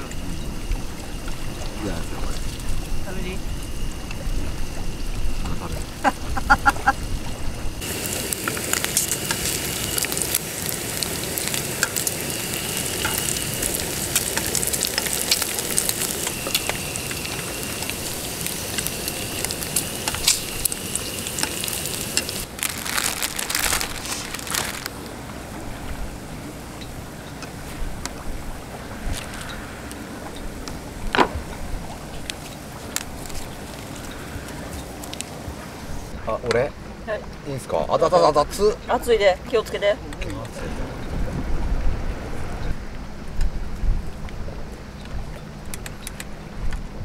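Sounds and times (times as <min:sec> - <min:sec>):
pork sizzling in a frying pan: 0:07.7 - 0:25.0
plastic bag crinkling: 0:21.8 - 0:25.0.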